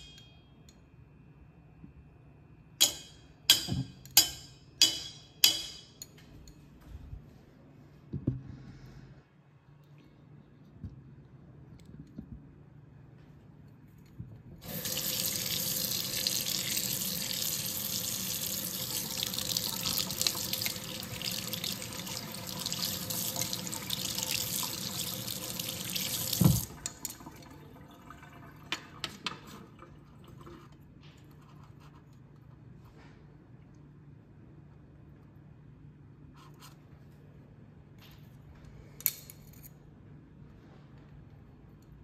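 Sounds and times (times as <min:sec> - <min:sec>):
faucet water running: 0:14.6 - 0:29.1
water dripping: 0:14.6 - 0:29.2.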